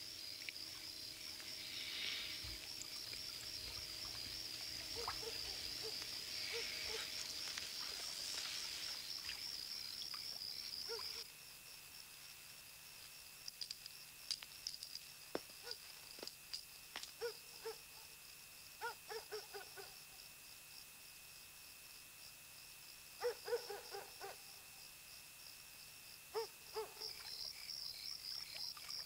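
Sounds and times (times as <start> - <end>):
insects chirping: 0.0 - 29.0
low frog croaks: 0.3 - 7.2.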